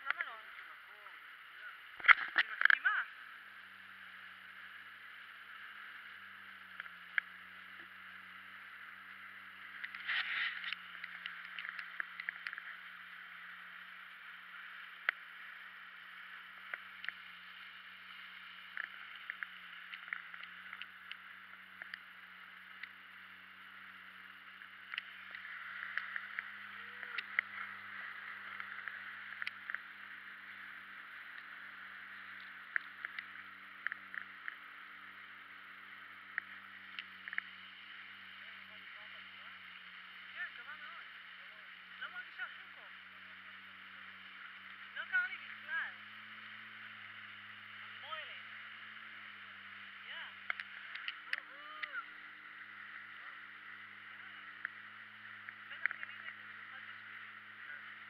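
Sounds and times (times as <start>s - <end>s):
jet ski engine humming: 0.0s - 58.0s.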